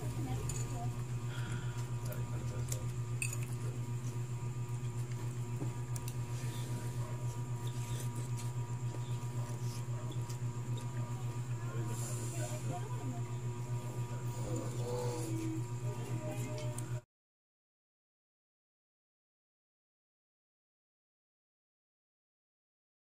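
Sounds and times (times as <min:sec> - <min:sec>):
low fluttering hum: 0:00.0 - 0:17.0.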